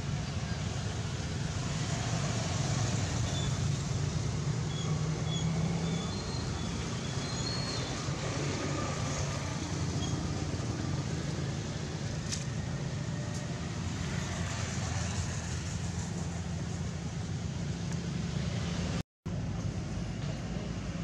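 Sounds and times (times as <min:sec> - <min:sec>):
low rumble of background noise: 0:07.9 - 0:21.0.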